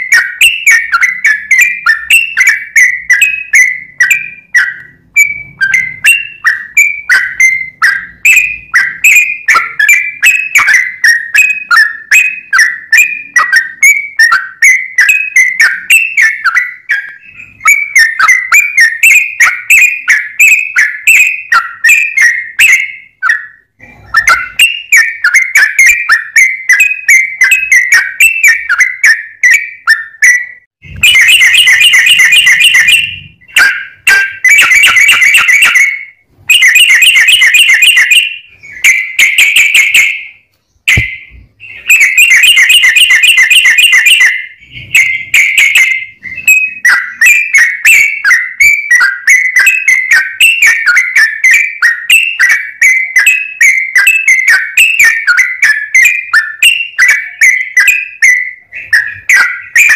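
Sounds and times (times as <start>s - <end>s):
bird singing whistled notes: 0.0s - 59.9s.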